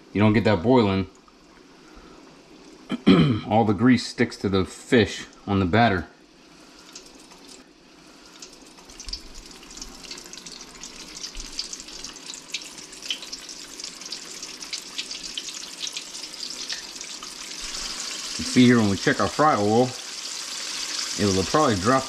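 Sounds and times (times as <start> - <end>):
battered fish deep-frying in oil: 6.6 - 22.0.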